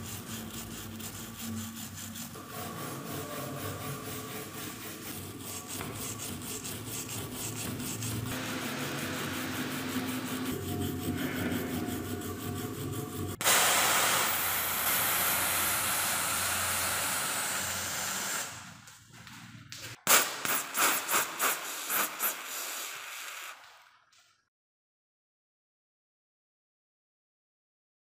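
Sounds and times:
stiff brush scrubbing metal: 0:00.0 - 0:16.8
foam spray hissing: 0:13.4 - 0:18.6, 0:20.1 - 0:23.8.

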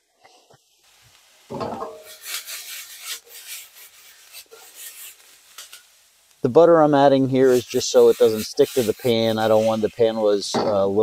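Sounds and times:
vegetables scraping in steel pan: 0:01.5 - 0:05.9, 0:07.4 - 0:11.0.

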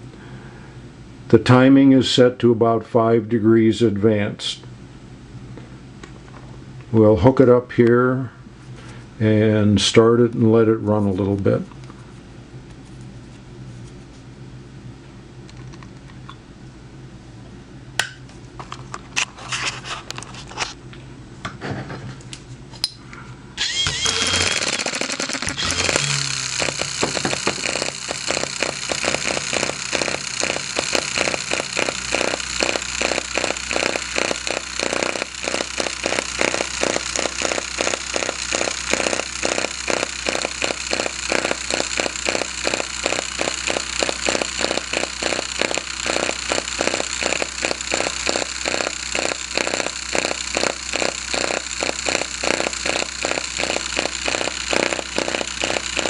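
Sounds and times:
small model engine running: 0:23.6 - 0:56.0.

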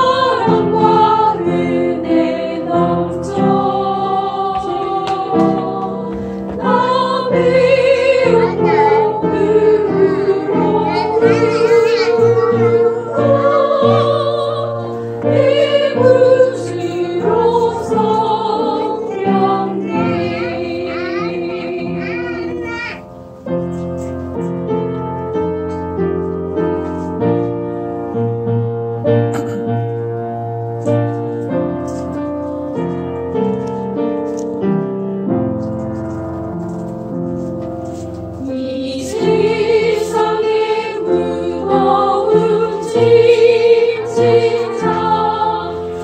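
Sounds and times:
vocal ensemble singing a hymn: 0:00.0 - 0:22.7, 0:37.9 - 0:46.0.

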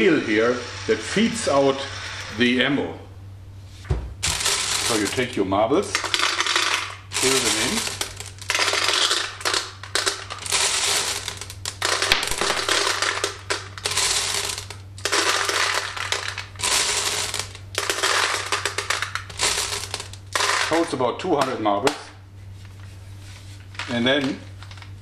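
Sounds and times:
glass marbles clattering into hopper: 0:04.2 - 0:21.6.

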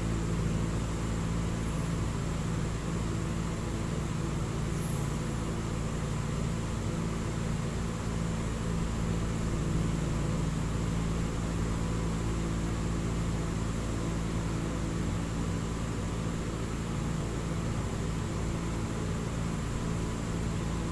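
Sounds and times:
fan hum and hiss: 0:00.0 - 0:20.9.

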